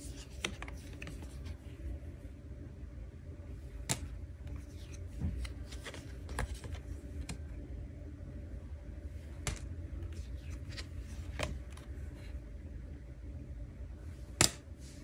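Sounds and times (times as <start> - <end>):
paper cards on wooden table: 0.0 - 1.8, 3.6 - 7.6, 9.2 - 12.4
steady low hum: 0.0 - 15.0.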